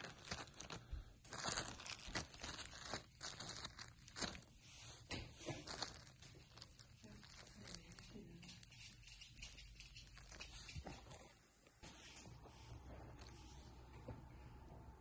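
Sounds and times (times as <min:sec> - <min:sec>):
plastic packaging crinkling: 0:00.0 - 0:11.2.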